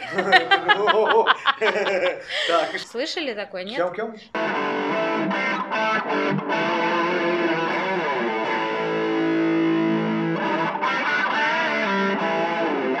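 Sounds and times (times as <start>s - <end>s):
distorted electric guitar lead: 4.3s - 13.0s.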